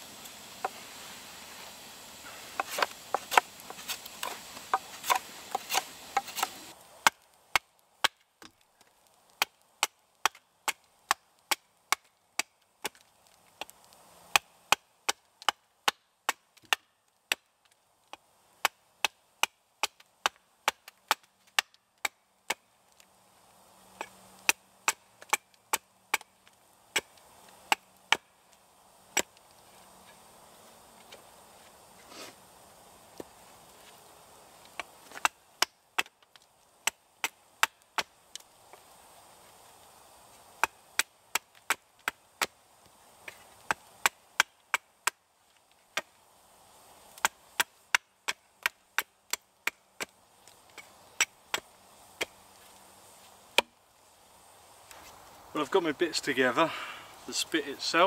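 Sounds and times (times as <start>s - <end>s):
knife carving wood: 2.6s - 8.6s, 40.6s - 42.6s
small axe chopping wood: 2.6s - 8.6s, 9.3s - 13.0s, 13.6s - 17.5s, 18.1s - 22.7s, 24.0s - 26.3s, 26.9s - 28.3s, 29.1s - 29.4s, 34.7s - 38.2s, 40.6s - 42.6s, 43.2s - 45.2s, 45.9s - 46.2s, 47.2s - 50.1s, 50.7s - 52.4s, 53.6s - 53.8s.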